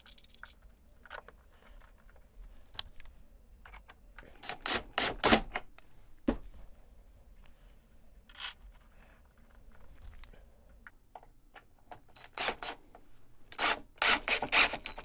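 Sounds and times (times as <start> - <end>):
cordless drill driving a screw: 12.2 - 12.8, 13.5 - 15.0.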